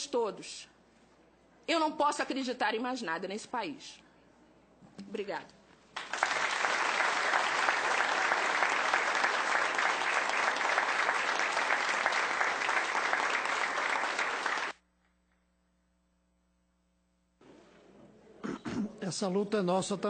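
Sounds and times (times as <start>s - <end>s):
audience applauding: 6.0s - 14.8s.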